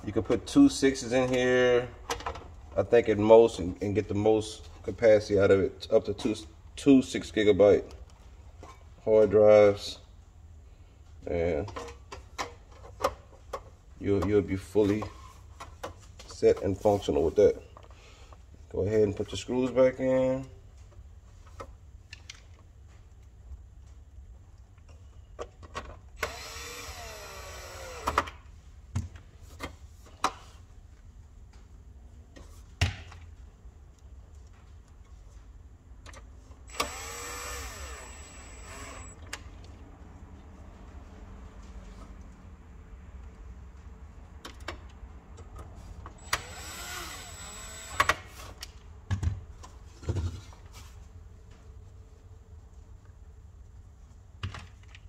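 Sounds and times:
power drill whining: 26.2 - 28.3, 36.7 - 39.2, 46.2 - 48.3.

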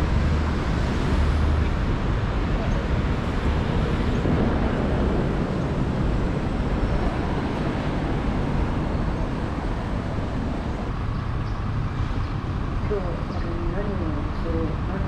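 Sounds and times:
road traffic passing: 0.0 - 15.0.

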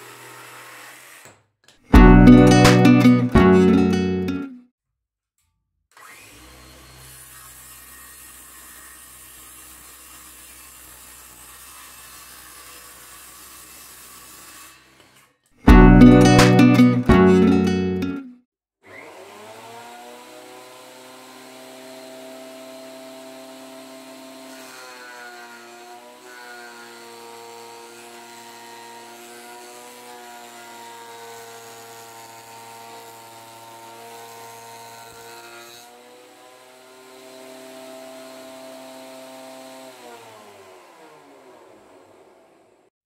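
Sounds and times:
cutter head planing wood: 0.0 - 1.4, 6.0 - 15.2, 18.9 - 42.5
planer running with whine: 19.0 - 25.2, 36.4 - 42.7.

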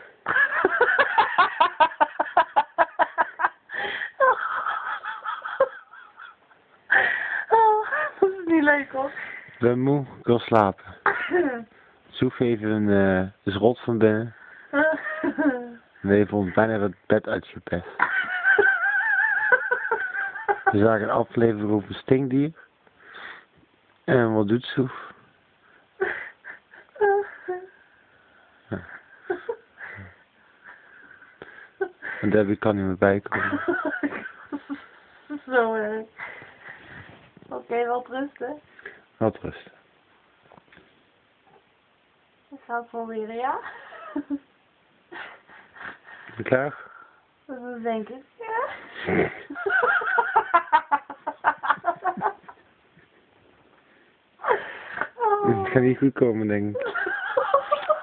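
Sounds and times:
person laughing breathlessly: 0.1 - 8.2, 26.0 - 27.8, 48.8 - 52.6
person laughing hard: 0.3 - 6.4.

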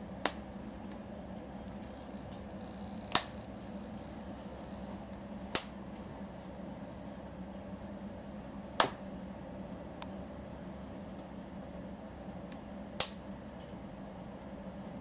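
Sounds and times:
steady low hum: 0.0 - 15.0
rubber band snapping: 3.1 - 3.4, 5.5 - 5.8, 13.0 - 13.2.

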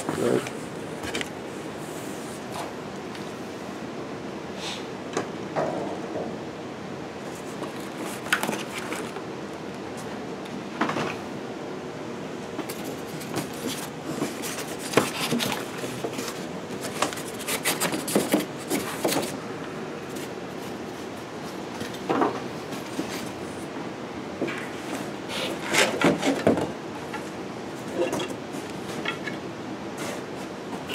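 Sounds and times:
cardboard scraping and rustling: 12.6 - 19.4, 24.8 - 26.7.

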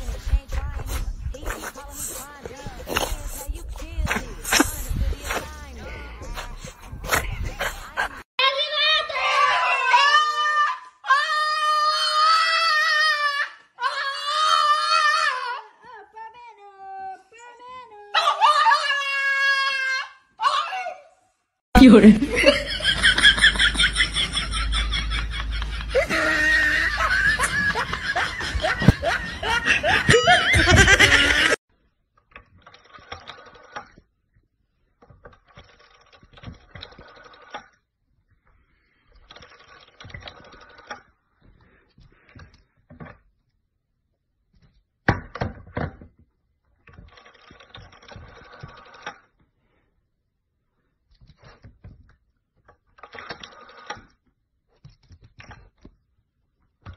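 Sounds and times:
people laughing: 22.0 - 31.6.

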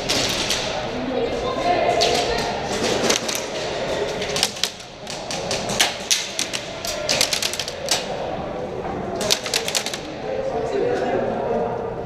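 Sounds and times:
airsoft guns firing: 9.2 - 10.1.

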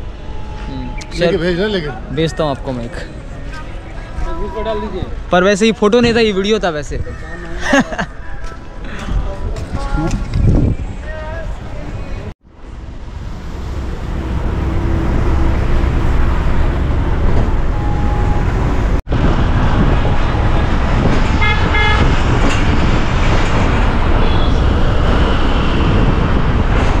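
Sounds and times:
road traffic rumble: 0.0 - 27.0.

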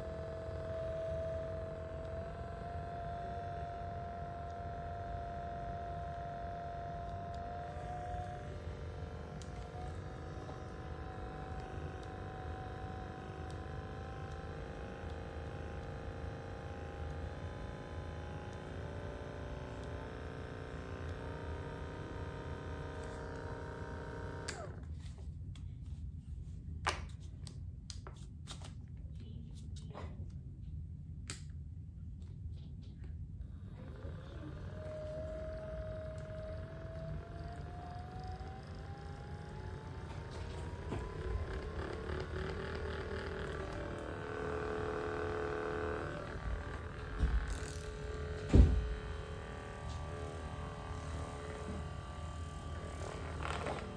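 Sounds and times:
massage gun motor humming: 0.0 - 25.6, 32.2 - 53.9
sharp thump: 48.5 - 48.9.

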